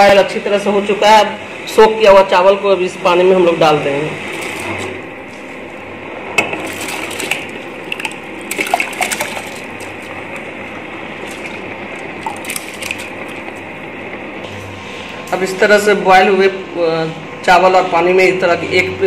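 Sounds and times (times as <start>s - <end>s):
steady hiss of boiling water: 9.6s - 17.9s.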